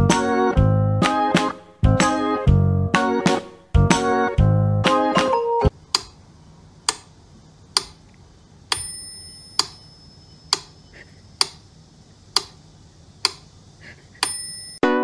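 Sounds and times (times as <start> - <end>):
metronome bell ringing: 8.7 - 10.9, 14.2 - 15.0.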